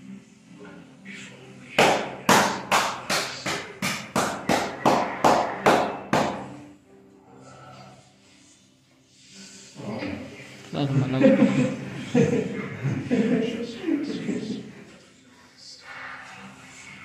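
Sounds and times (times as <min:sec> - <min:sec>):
hands slapping a back: 0:01.8 - 0:06.5.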